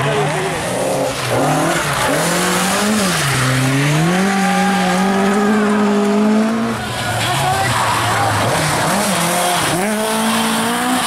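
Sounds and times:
rally car engine revving: 0.0 - 11.0.

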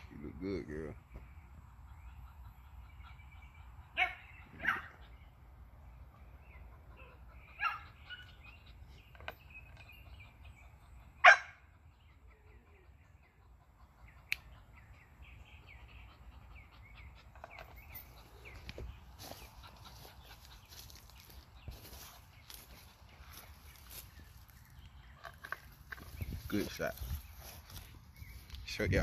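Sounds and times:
small birds chirping: 0.0 - 29.0
dog barking: 4.0 - 4.9, 7.6 - 8.2, 11.2 - 11.6.

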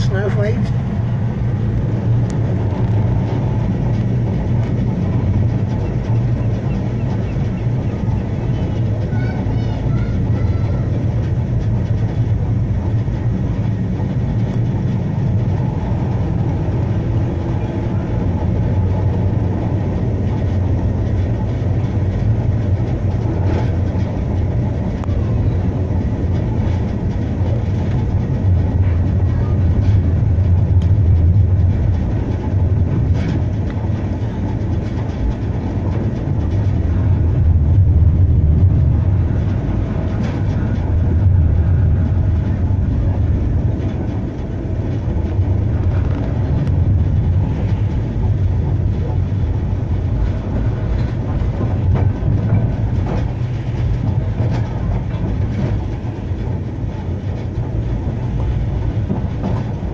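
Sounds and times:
tram motors and wheels rumbling: 0.0 - 59.9.

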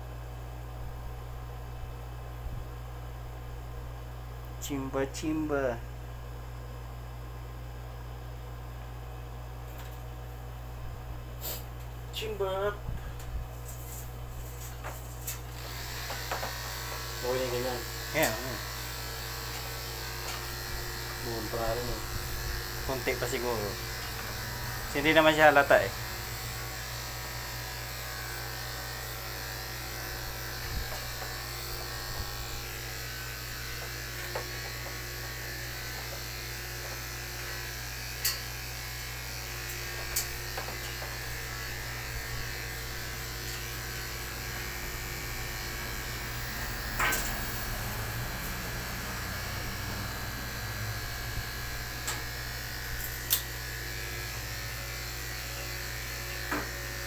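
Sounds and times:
electric hair clippers humming: 15.2 - 57.0.

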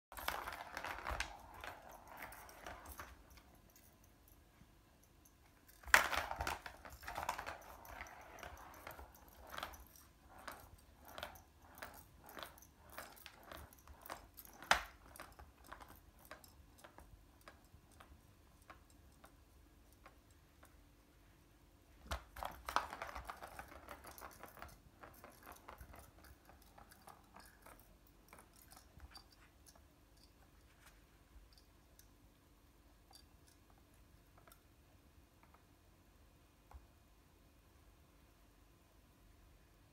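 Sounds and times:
toy ball rattling on plastic track: 0.1 - 4.1, 5.6 - 19.3, 22.1 - 30.5.

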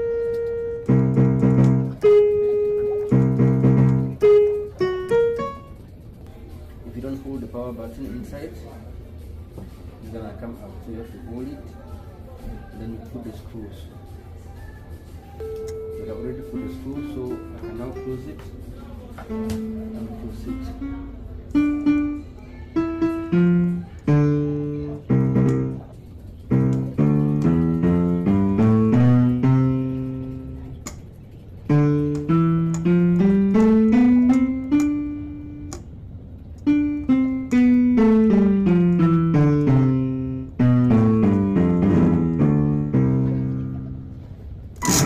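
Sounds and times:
piano melody with quick runs: 0.0 - 6.2, 15.4 - 18.7, 19.3 - 45.0.

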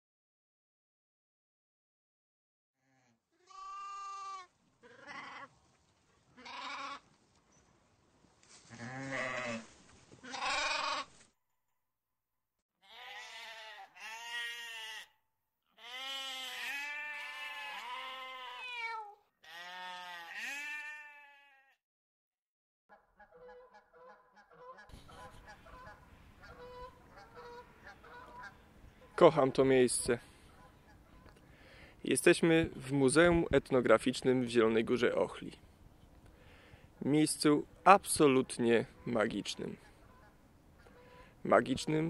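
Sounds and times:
sheep bleating: 2.8 - 5.5, 6.4 - 7.0, 8.7 - 11.1, 12.8 - 15.2, 15.8 - 21.8
geese honking: 22.9 - 29.3, 38.9 - 41.4.

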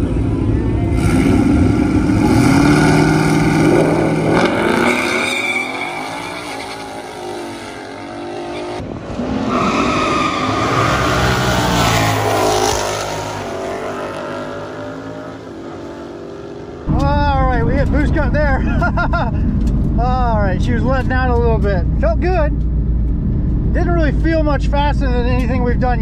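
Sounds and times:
car engine revving hard: 1.0 - 5.3
tyres spinning and squealing: 4.7 - 11.6.

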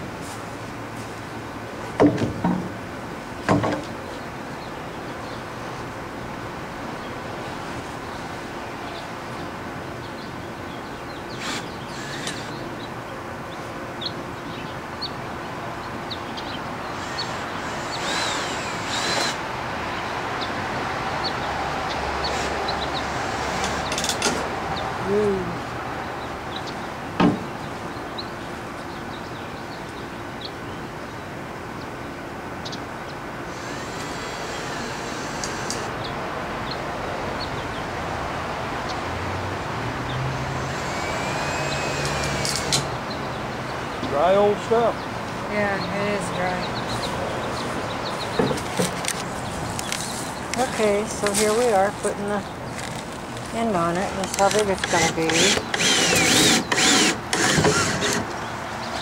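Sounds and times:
rustles: 0.1 - 2.0, 46.8 - 56.3.

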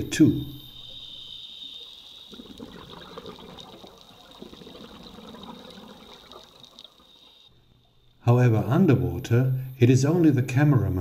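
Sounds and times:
high-pitched whine: 0.0 - 3.5, 7.0 - 11.0
underwater bubbling and gurgling: 0.5 - 8.2.

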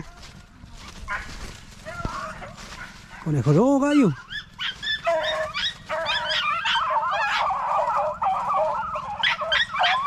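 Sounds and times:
hounds baying and yelping: 0.0 - 10.0.

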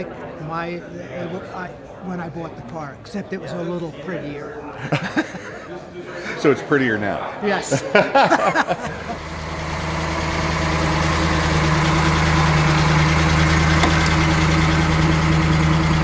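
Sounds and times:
car engine running: 9.0 - 16.0.

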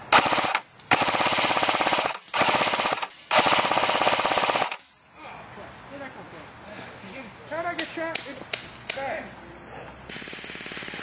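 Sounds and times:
airsoft machine gun bursts: 0.1 - 4.8, 10.1 - 11.0.

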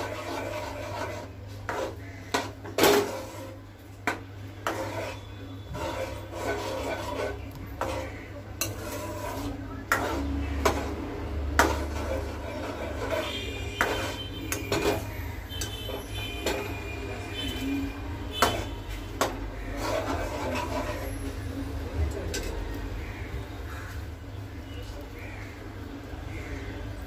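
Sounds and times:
metal spoon scraping steel pan: 0.0 - 23.1.

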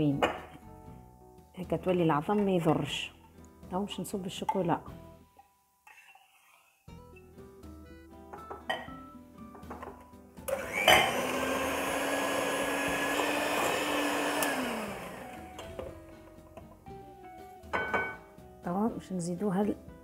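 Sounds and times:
quiet background music: 0.0 - 20.0
electric hand mixer running: 10.5 - 15.9.

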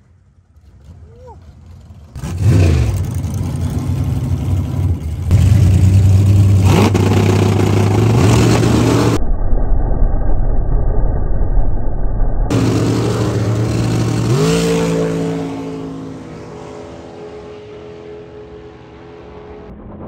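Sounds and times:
drag car engine accelerating: 0.0 - 9.2, 12.5 - 20.0.

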